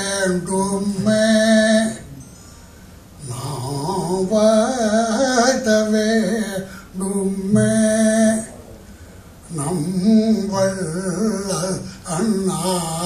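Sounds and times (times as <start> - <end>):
man singing slow chant: 0.0 - 2.4, 3.2 - 13.0.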